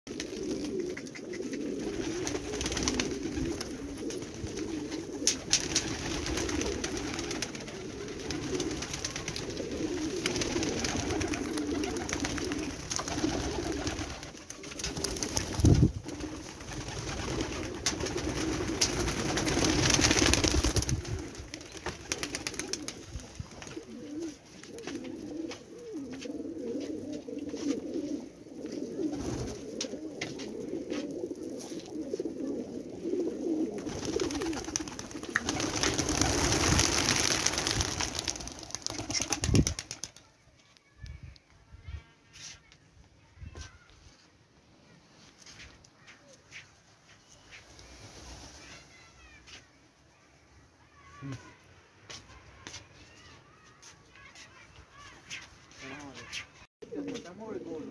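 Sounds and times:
pigeons cooing: 0:00.1 - 0:40.1.

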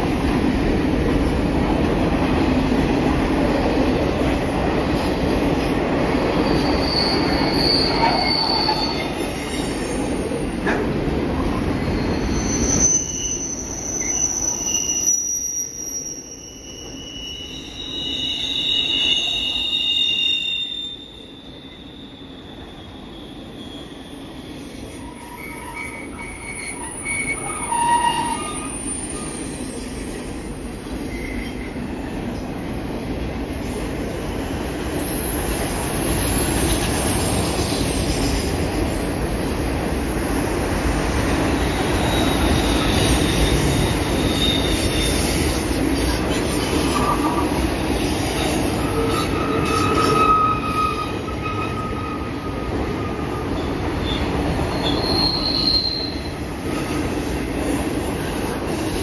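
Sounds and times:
train wheels rumbling on rails: 0:00.0 - 0:59.0
high wheel squeals: 0:06.3 - 0:10.5, 0:11.7 - 0:29.8, 0:41.6 - 0:47.6, 0:48.2 - 0:57.1.

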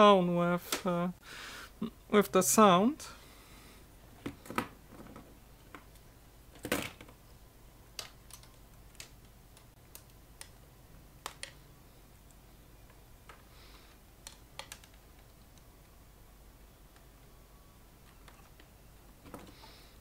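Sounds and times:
small clicks and taps on metal: 0:14.2 - 0:15.7.

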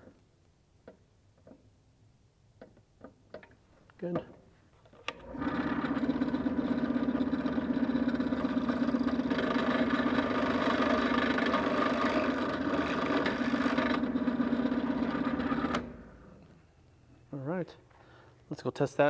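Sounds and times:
drill press motor hum: 0:05.1 - 0:16.6
drill bit cutting metal: 0:09.4 - 0:14.0.

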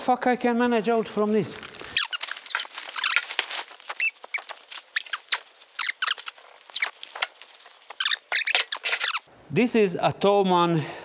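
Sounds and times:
plastic wrap crackling and rustling: 0:01.0 - 0:09.3.

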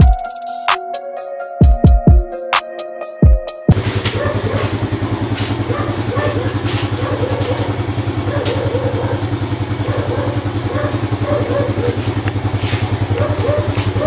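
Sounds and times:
motorcycle engine idling: 0:03.7 - 0:14.0.

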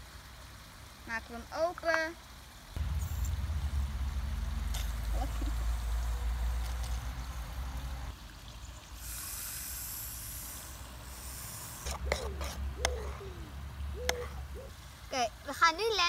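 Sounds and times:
aerosol can spraying foam: 0:09.0 - 0:12.6.

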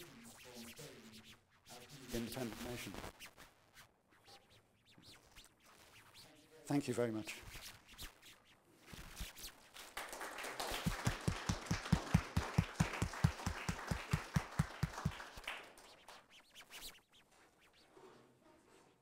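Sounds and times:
close hand claps: 0:09.8 - 0:16.3
audience applauding: 0:09.9 - 0:16.0.

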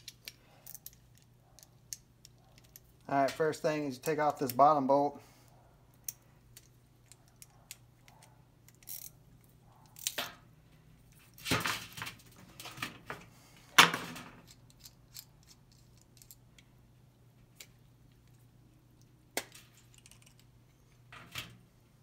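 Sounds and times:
small metal clicks and clinks: 0:06.0 - 0:09.2.

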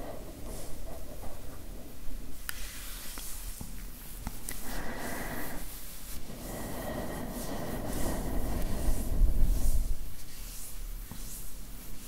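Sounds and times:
soft scratchy rubbing: 0:02.4 - 0:12.0.

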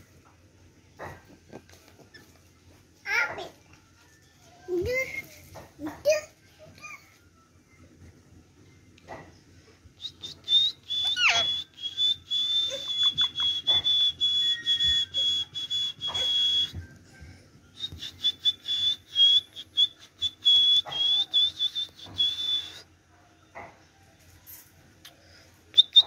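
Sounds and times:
parakeet shrill whistling: 0:11.0 - 0:11.7.

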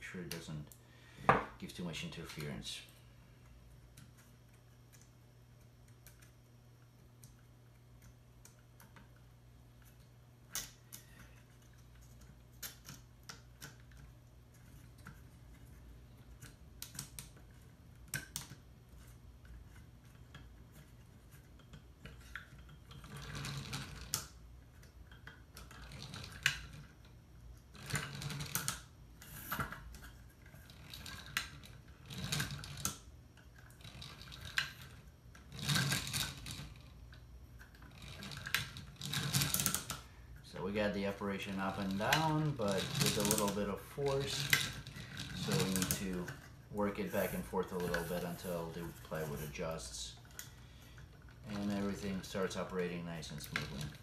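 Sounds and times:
wooden gears clattering: 0:40.8 - 0:50.4.

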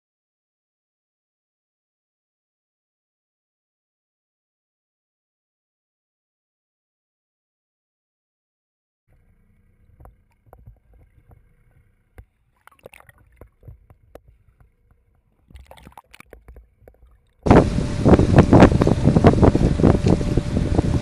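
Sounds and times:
faint underwater clicks: 0:09.1 - 0:17.5
low underwater rumbles: 0:09.1 - 0:21.0
wind buffeting microphone: 0:17.4 - 0:21.0.

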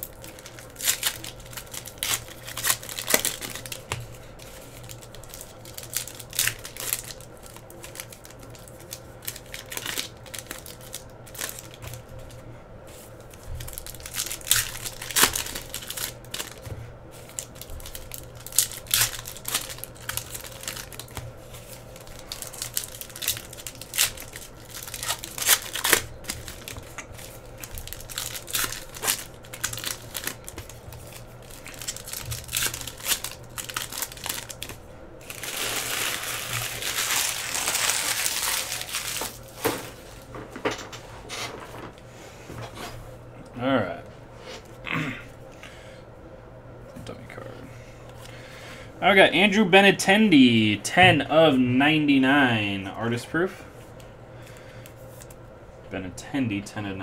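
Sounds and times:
foil wrappers crinkling and tearing: 0:00.0 - 0:40.3
low steady hum: 0:00.0 - 0:57.0.

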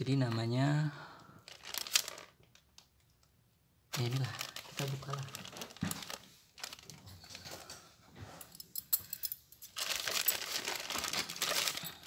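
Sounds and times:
plastic mailer bag crinkling: 0:01.4 - 0:02.6, 0:03.9 - 0:07.5, 0:09.8 - 0:12.0.

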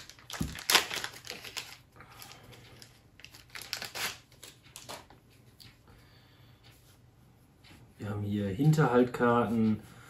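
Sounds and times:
packaging crinkling and rustling: 0:00.0 - 0:05.2.

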